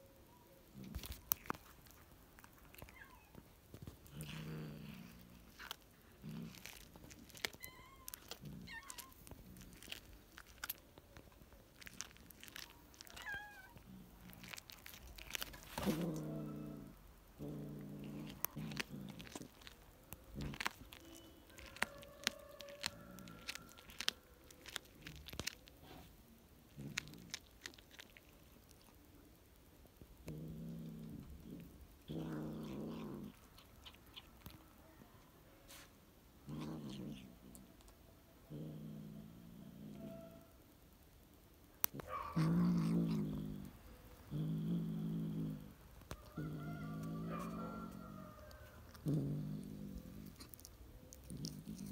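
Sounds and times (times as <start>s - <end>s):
cat crunching on bone: 0.7s - 34.7s, 36.4s - 38.8s, 41.8s - 51.9s.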